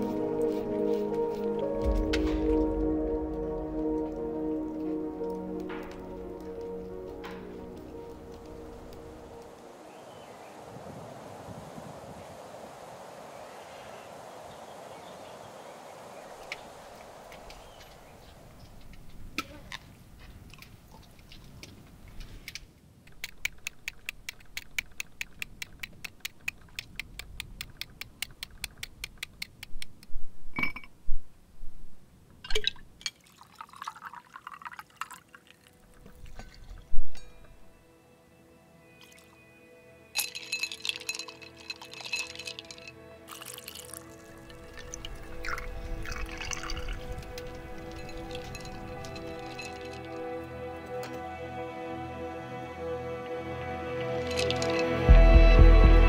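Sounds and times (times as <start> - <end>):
soft wind hiss: 0.0 - 23.1, 29.9 - 55.1
knocks and clinks: 30.5 - 31.0, 40.2 - 43.8, 47.8 - 50.2, 54.2 - 55.1.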